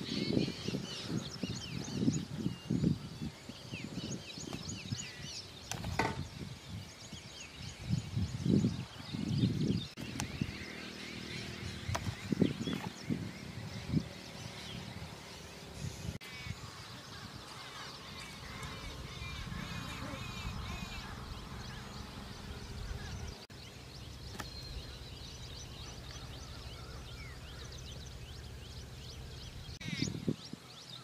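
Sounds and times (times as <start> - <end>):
birds chirping and singing: 0.0 - 31.0
low rumbles: 7.9 - 30.5.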